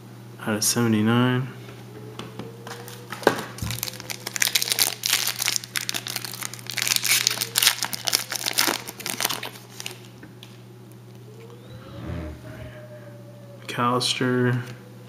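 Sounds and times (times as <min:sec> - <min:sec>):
foil wrapper crinkling and tearing: 0:02.7 - 0:10.6.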